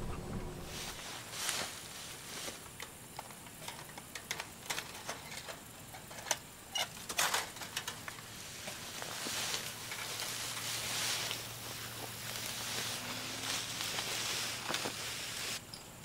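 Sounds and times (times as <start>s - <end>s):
wire fence clinking and rattling: 3.6s - 11.4s.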